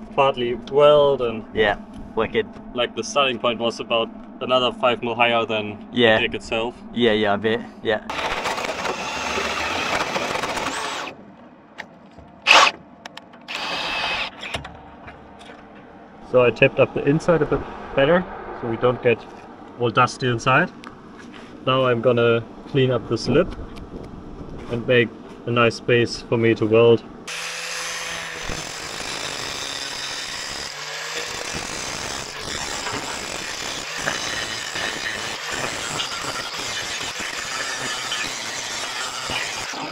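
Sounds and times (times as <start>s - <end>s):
angle grinder grinding metal: 8.1s - 11.1s, 12.5s - 12.7s, 13.5s - 14.4s, 27.3s - 39.9s
power drill cutting metal: 8.1s - 11.1s, 12.5s - 12.7s, 13.5s - 14.5s, 27.3s - 39.9s.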